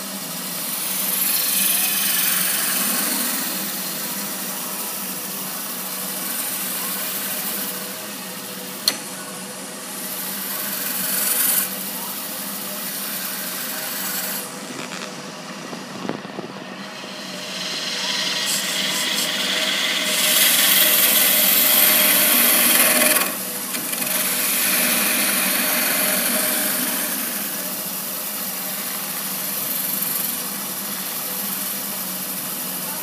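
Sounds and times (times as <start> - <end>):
lathe motor hum: 0.0 - 32.6
gouge cutting wood hiss: 0.4 - 8.0, 8.7 - 15.9, 16.7 - 32.9
sharp click: 8.8 - 9.1.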